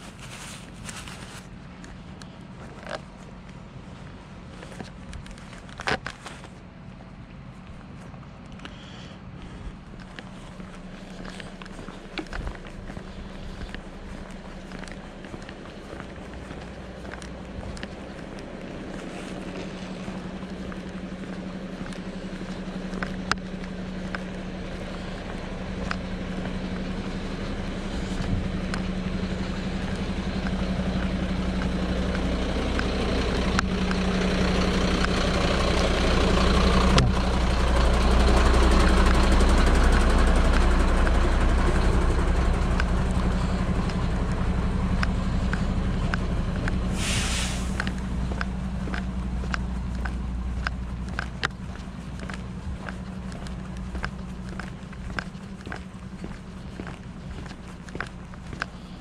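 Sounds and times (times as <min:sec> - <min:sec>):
walking poles clicking: 0:00.0 - 0:06.7, 0:07.6 - 0:59.0
footsteps on stone paving: 0:00.0 - 0:59.0
diesel engine idling: 0:06.6 - 0:59.0
short hiss: 0:46.9 - 0:47.9.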